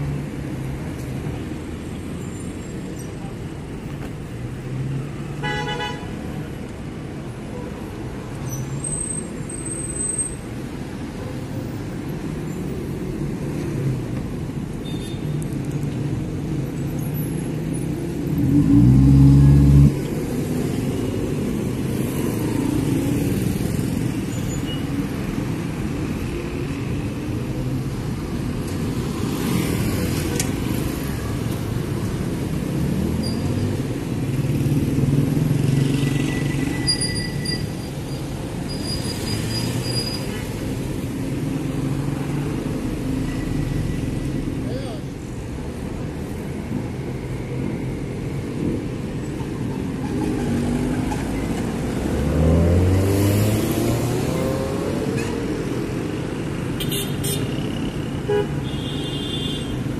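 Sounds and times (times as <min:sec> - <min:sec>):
road traffic rumble: 0:00.0 - 0:59.9.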